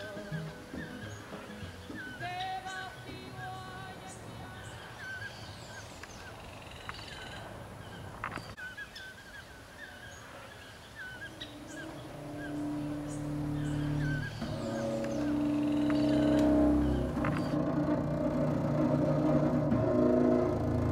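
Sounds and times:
low steady hum: 11.1s - 20.9s.

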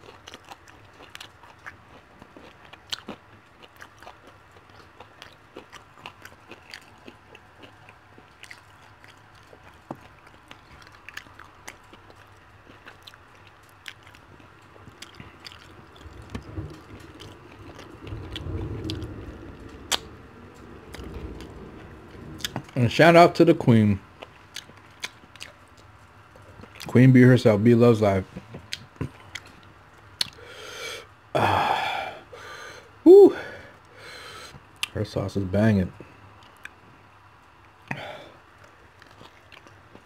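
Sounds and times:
chewing chicken wings: 0.0s - 21.4s, 24.2s - 26.9s, 28.4s - 30.5s, 38.6s - 40.0s
low rumble: 15.7s - 24.3s.

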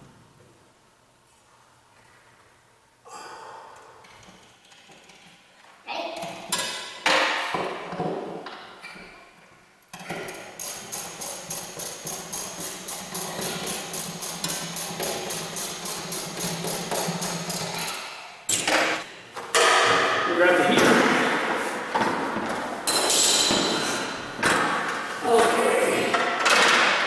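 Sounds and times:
ratchet wrench clicking: 10.3s - 18.0s.

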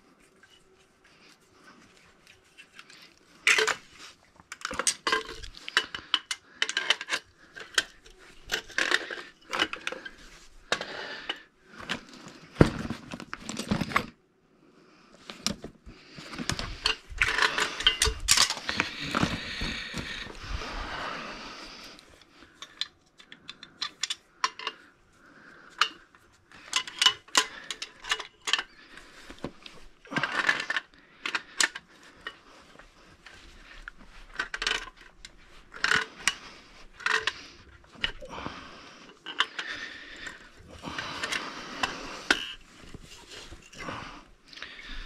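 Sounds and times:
metal hand tools clinking: 16.7s - 18.8s.

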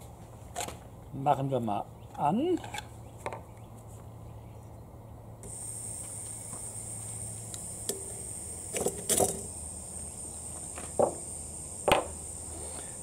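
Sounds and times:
gas hissing from stove burner: 5.4s - 13.0s.

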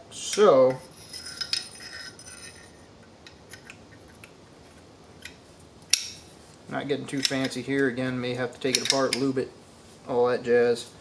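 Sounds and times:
metal parts clinking: 8.7s - 9.3s.

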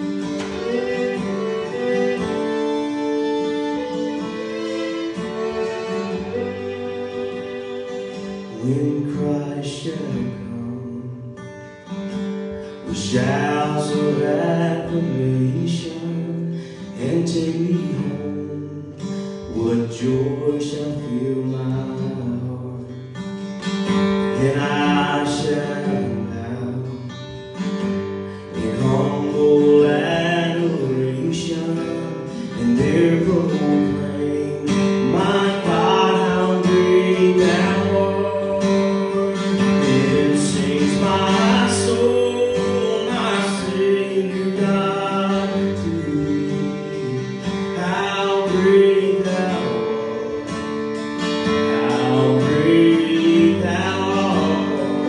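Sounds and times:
fiddle playing: 0.0s - 9.4s, 27.8s - 55.0s
strummed acoustic guitar: 0.0s - 55.0s
man singing: 8.4s - 11.5s, 12.8s - 23.3s, 24.1s - 27.4s, 28.4s - 55.0s.

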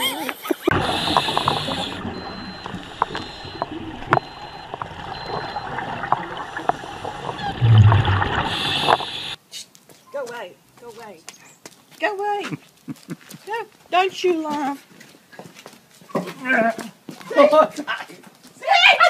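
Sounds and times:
bubbles hissing and gurgling: 0.0s - 9.4s
diver breathing through regulator: 0.7s - 4.5s, 6.4s - 9.4s
low rumble of bubbles: 0.7s - 9.4s.

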